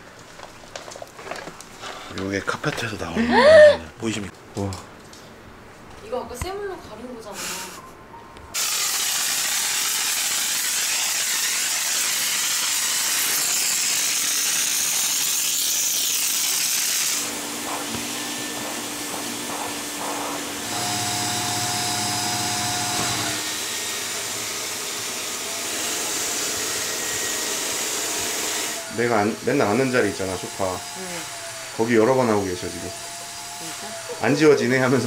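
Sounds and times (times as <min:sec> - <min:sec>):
spray wand hissing: 0:08.6 - 0:20.5
cleaning machine humming and whining: 0:08.6 - 0:35.0.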